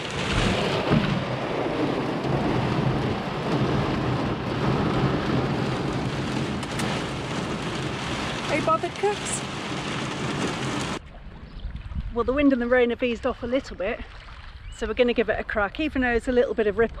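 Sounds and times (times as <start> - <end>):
heavy rain drumming on car roof: 0.0 - 11.0.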